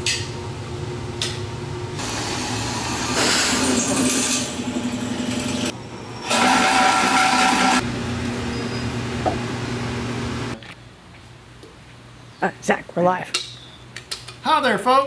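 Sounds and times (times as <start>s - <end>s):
drill press cutting steel: 2.0s - 7.8s
high metal screech: 3.2s - 7.8s.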